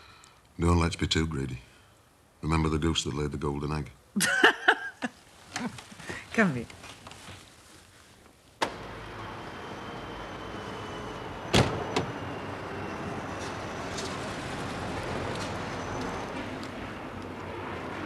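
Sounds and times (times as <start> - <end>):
street traffic: 8.6 - 18.0
car door slamming shut: 11.5 - 12.1.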